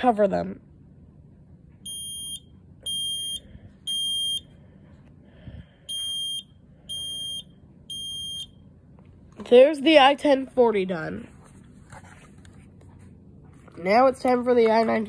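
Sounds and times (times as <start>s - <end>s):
smoke alarm short high beeps: 1.9s - 4.5s, 5.9s - 8.6s.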